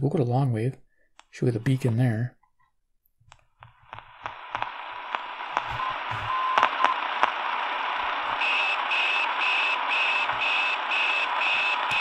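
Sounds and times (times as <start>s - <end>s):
radio static hiss: 3.6s - 12.0s
pulsing beep: 5.8s - 7.0s
faint steady whistle: 8.4s - 12.0s.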